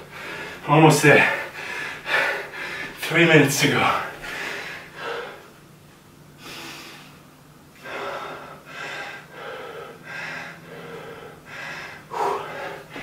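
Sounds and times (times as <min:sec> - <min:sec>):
man gasping for breath: 0:07.8 - 0:13.0.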